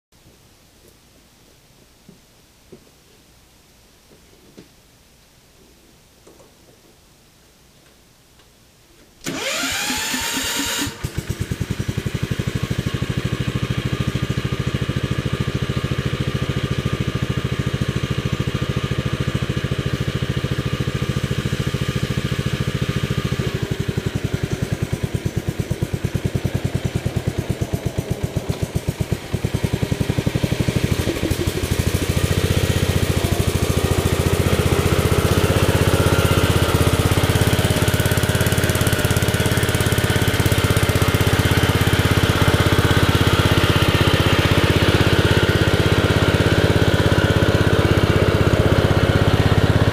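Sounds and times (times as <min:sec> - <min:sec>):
starter motor whir: 0:09.2 - 0:12.2
tractor engine running: 0:09.2 - 0:49.9.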